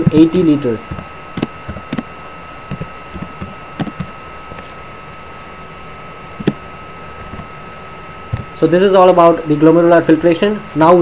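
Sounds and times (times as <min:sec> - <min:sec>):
steady background tone: 0:00.0 - 0:11.0
keyboard keystrokes: 0:02.7 - 0:04.1.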